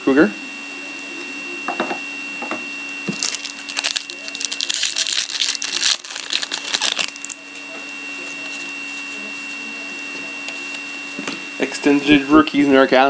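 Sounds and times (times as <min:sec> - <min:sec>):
foil wrapper crinkling: 0:03.0 - 0:07.5.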